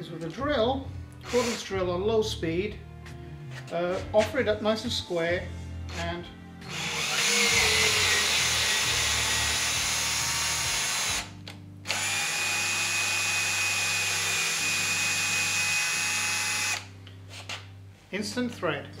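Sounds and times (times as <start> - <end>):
cordless drill running: 6.7 - 11.3, 11.9 - 16.9.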